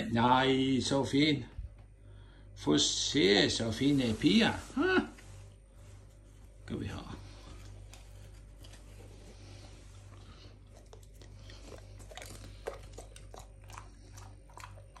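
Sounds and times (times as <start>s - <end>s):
faint low hum: 0.0s - 15.0s
puppy chewing crunching: 7.2s - 15.0s.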